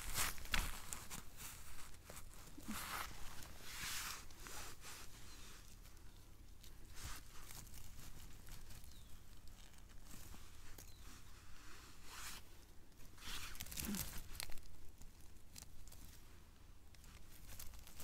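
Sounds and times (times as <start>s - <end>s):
hands rustling in moss: 0.0s - 18.0s
mushrooms tearing free: 13.2s - 16.0s.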